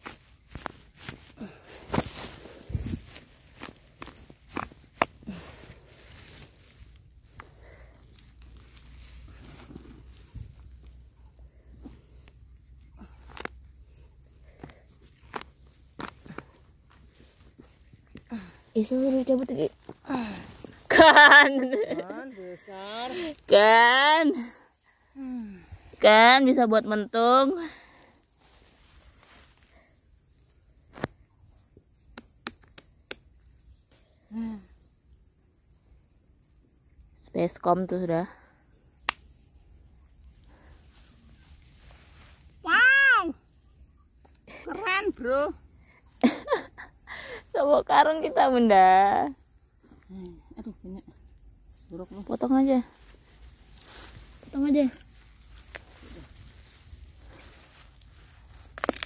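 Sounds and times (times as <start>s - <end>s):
hands scraping soil and grass: 0.0s - 23.5s
insect chirring: 0.0s - 59.0s
soil clods clicking and knocking: 3.6s - 5.5s, 58.6s - 59.0s.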